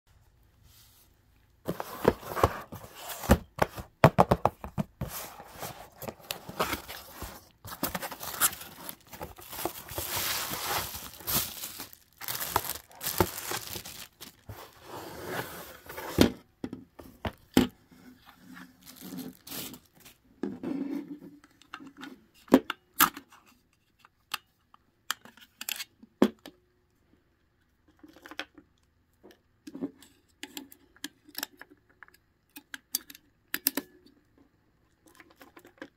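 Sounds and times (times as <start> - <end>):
packaging and bubble wrap crinkling: 1.7 - 3.8, 4.8 - 15.8, 18.7 - 20.2.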